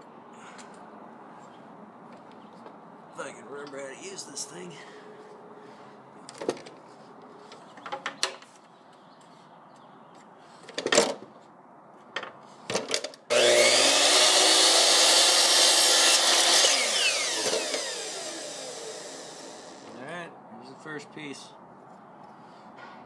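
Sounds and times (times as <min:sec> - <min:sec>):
knocks and clicks of wood handling: 0:07.5 - 0:08.6
miter saw motor cutting: 0:13.3 - 0:19.9
saw motor winding down: 0:13.3 - 0:19.9.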